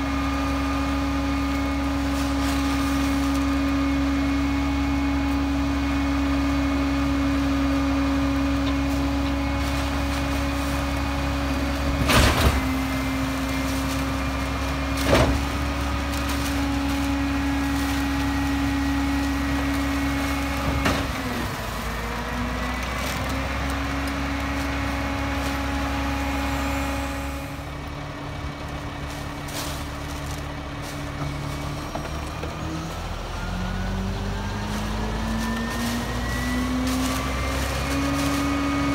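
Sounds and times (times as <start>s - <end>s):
garbage truck engine running: 0.0s - 38.9s
bags knocking into hopper: 11.9s - 13.1s.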